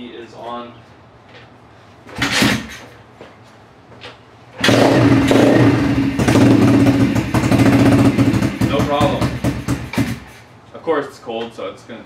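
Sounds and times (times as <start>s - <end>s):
motorbike engine running loudly: 4.6s - 10.3s.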